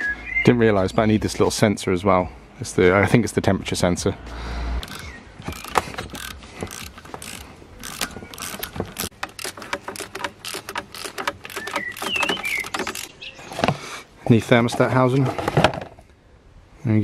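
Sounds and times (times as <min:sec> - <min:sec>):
socket ratchet clicking: 0:04.8 - 0:13.1.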